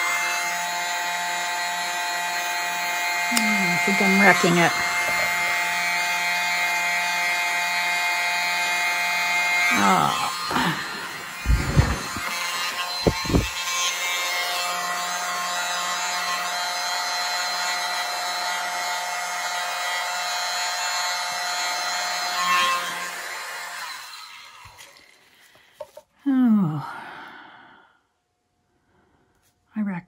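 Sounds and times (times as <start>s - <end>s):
hairdryer running: 0.0s - 26.0s
low thumps: 11.4s - 12.3s, 12.9s - 13.6s.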